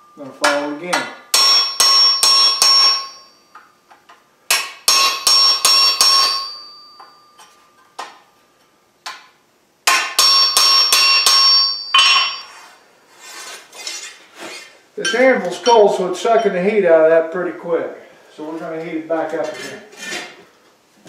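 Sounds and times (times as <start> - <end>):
hammer striking chisel on steel: 0.1 - 3.7, 4.5 - 8.2, 9.1 - 12.7, 15.0 - 16.6.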